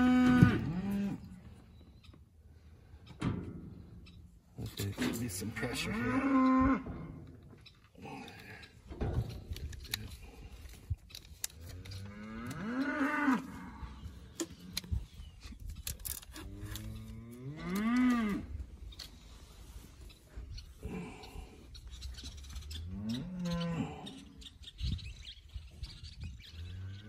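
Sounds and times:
calf mooing: 0.0s - 1.3s, 5.8s - 7.0s, 12.0s - 13.9s.

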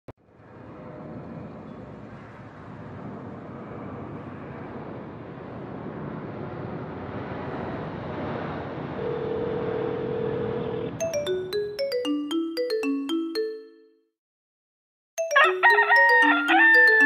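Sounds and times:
wind-like rushing noise: 0.5s - 9.0s.

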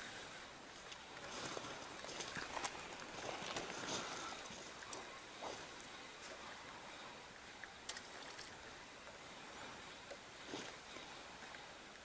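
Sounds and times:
water lapping along boat hull: 0.0s - 12.0s.

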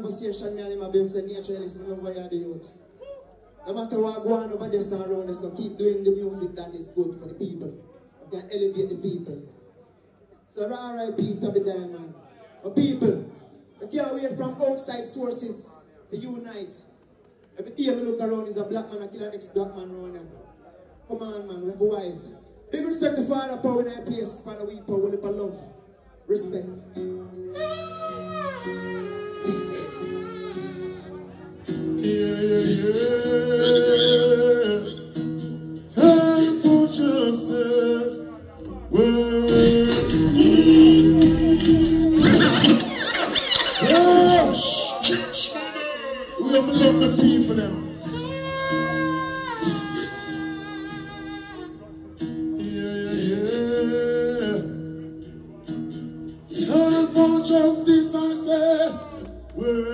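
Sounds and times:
backing music: 26.7s - 59.9s
man singing into a microphone: 27.5s - 31.2s, 32.0s - 35.2s, 35.9s - 42.7s, 43.8s - 55.0s, 56.5s - 59.9s.

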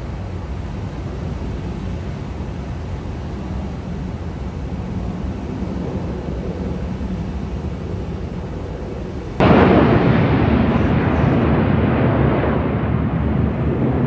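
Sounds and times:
distant jet aircraft rumble: 0.0s - 14.0s
wind noise on microphone: 0.0s - 14.0s
loud jet roar: 4.9s - 14.0s.

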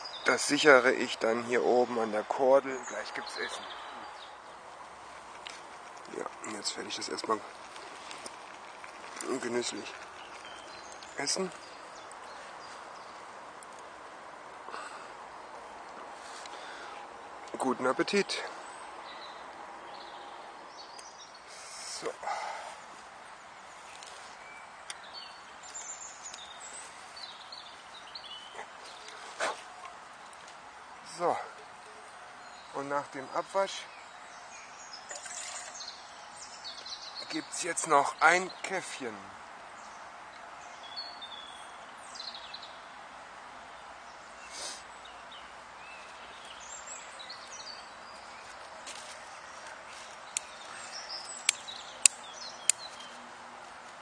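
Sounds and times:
small birds chirping: 0.0s - 54.0s
steady woodland hiss: 0.0s - 54.0s
twigs snapping: 5.1s - 12.3s, 48.9s - 53.2s.

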